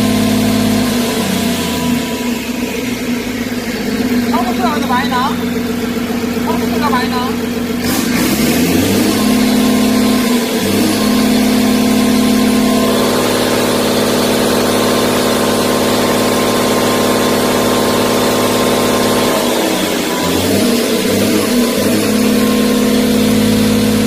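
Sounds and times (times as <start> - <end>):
diesel engine running: 0.0 - 24.0.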